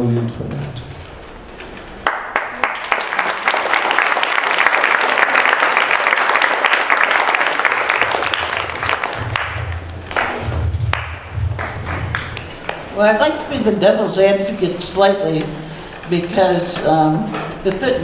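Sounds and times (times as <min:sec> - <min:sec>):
audience applauding: 0:02.0 - 0:12.9.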